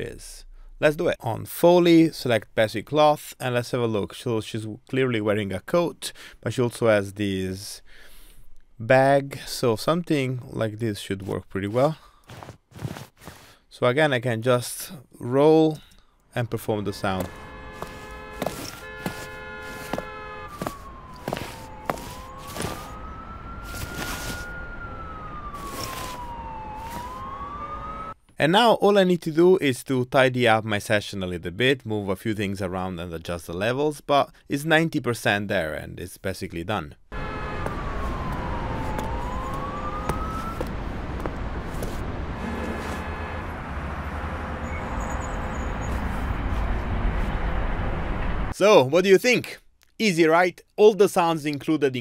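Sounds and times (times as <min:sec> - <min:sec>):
coat and bag rustles: 0:12.3 - 0:13.4, 0:17.2 - 0:23.0, 0:23.6 - 0:24.5, 0:25.5 - 0:27.2
city ambience: 0:13.2 - 0:28.4, 0:36.9 - 0:48.8
traffic rumble: 0:16.2 - 0:28.2, 0:37.1 - 0:48.6
wailing siren: 0:16.9 - 0:28.2, 0:37.1 - 0:47.6
heel footstep clicks: 0:17.2 - 0:22.9, 0:40.0 - 0:42.0.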